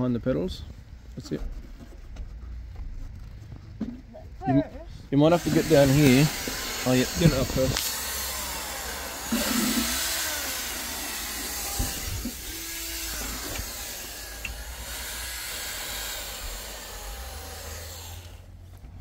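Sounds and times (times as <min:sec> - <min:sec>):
power scrubber motor running: 0:05.3 - 0:18.6
steady hiss: 0:05.4 - 0:08.0.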